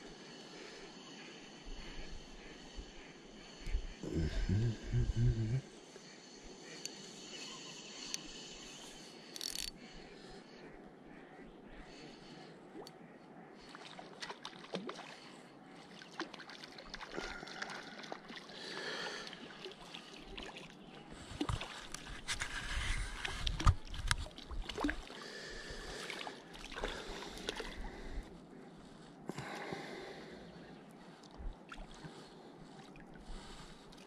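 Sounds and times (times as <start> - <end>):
lake water sloshing: 13.6 - 28.1.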